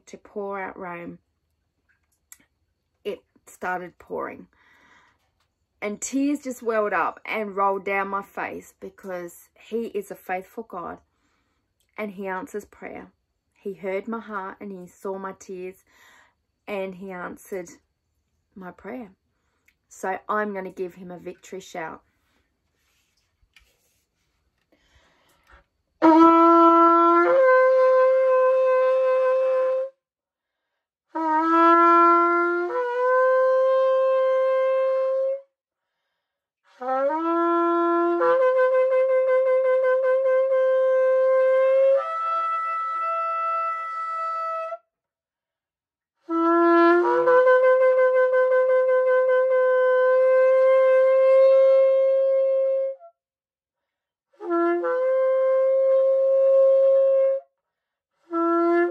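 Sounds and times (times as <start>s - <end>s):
shofar blasts: 26.0s - 30.0s, 31.2s - 35.5s, 36.7s - 44.9s, 46.3s - 53.1s, 54.4s - 57.4s.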